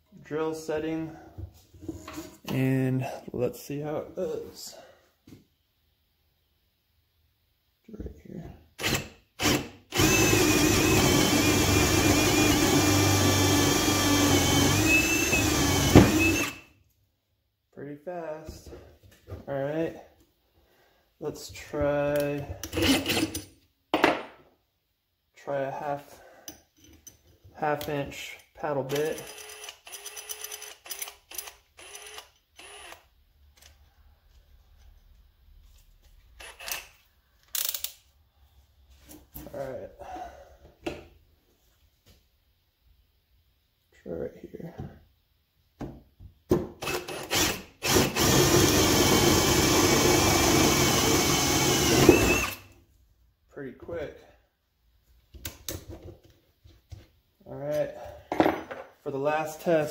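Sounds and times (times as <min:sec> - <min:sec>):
drill whining into wood: 0:08.8 - 0:16.7, 0:29.2 - 0:33.0, 0:46.8 - 0:52.8.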